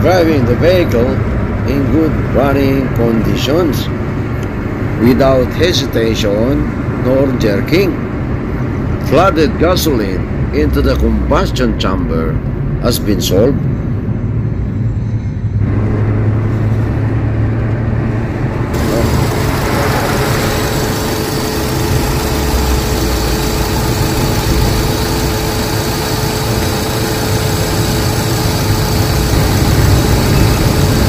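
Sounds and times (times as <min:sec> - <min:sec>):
car engine running: 0:15.6 - 0:31.0.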